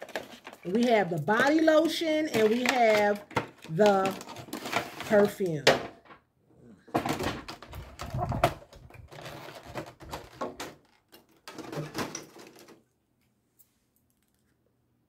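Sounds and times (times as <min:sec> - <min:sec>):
packaging rustling and clicking: 0:00.0 - 0:05.3, 0:07.0 - 0:12.8.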